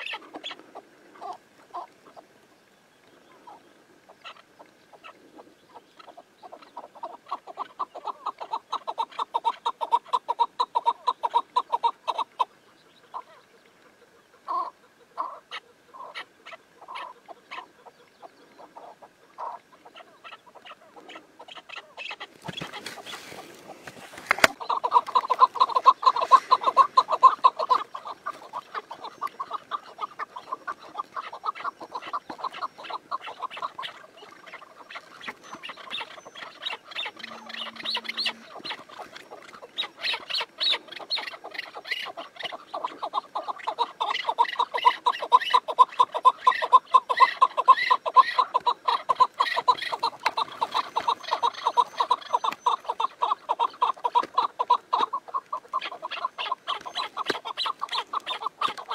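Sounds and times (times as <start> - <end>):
brief rustle: 22.4 - 24.6.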